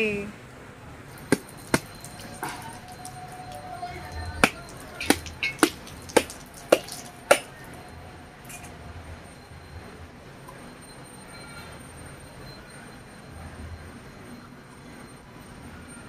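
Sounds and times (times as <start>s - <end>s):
knife knocking on coconut: 4.4s - 7.5s.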